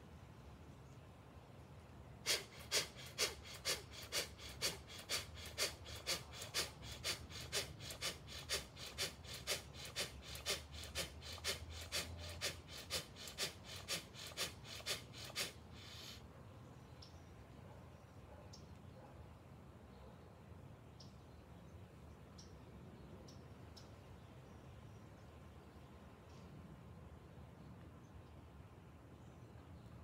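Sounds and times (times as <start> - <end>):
man breathing forcefully: 2.2 - 16.2.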